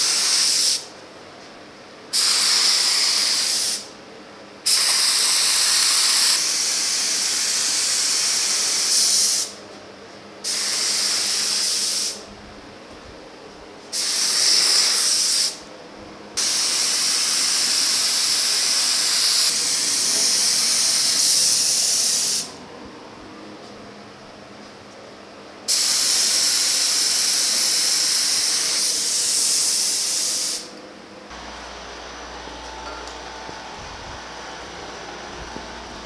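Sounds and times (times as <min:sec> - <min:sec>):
paint spray gun hissing: 0:00.0 - 0:00.9, 0:02.1 - 0:03.9, 0:04.7 - 0:09.6, 0:10.4 - 0:12.2, 0:13.9 - 0:15.6, 0:16.4 - 0:22.6, 0:25.7 - 0:30.7.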